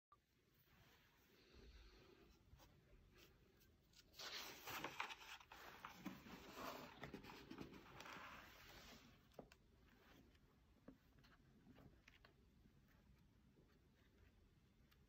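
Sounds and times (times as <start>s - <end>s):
book pages turning: 3.1s - 10.4s.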